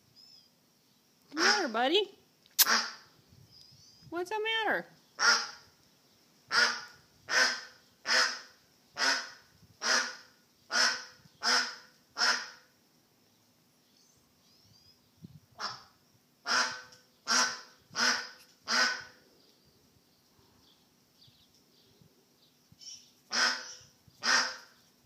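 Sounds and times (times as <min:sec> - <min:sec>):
duck quacking loudly: 0:01.4 - 0:01.7, 0:02.6 - 0:03.0, 0:05.2 - 0:05.6, 0:06.5 - 0:12.6, 0:16.5 - 0:19.2, 0:23.3 - 0:24.7.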